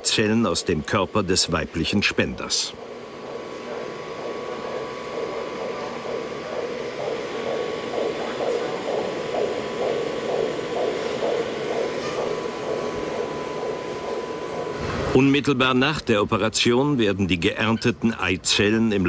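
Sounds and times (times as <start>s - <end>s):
steady hum: 0.0s - 19.0s
patient monitor pulse tones: 0.5s - 15.4s.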